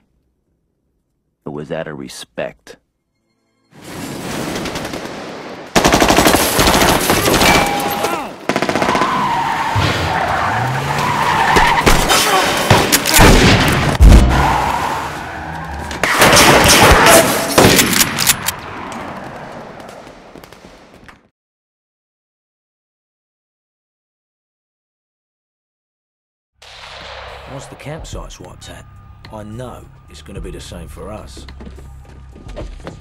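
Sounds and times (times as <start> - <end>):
car noise: 9.1 - 20.5.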